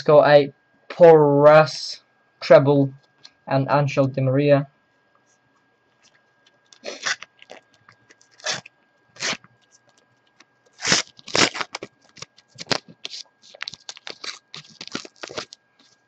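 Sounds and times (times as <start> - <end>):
foil packet crinkling: 6.0 - 16.0.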